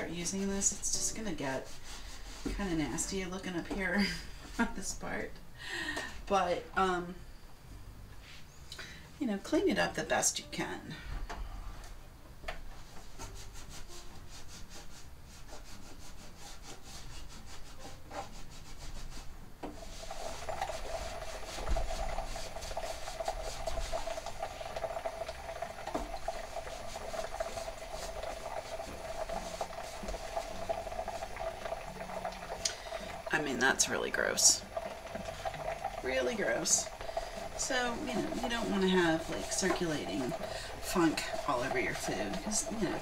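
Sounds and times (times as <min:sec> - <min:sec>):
paper towel rubbing basket: 0:00.1 - 0:03.2, 0:12.8 - 0:25.0, 0:25.7 - 0:31.8, 0:35.1 - 0:43.0.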